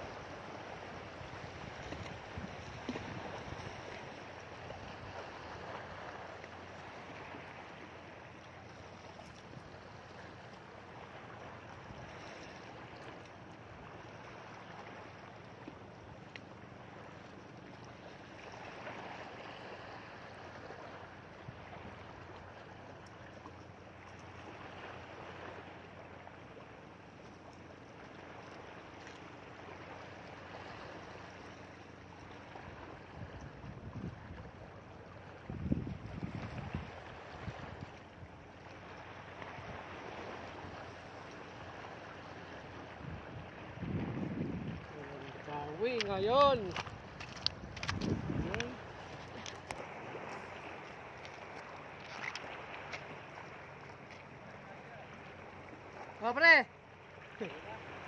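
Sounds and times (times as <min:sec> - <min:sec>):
waves washing against rocky shore: 0:35.4 - 0:58.0.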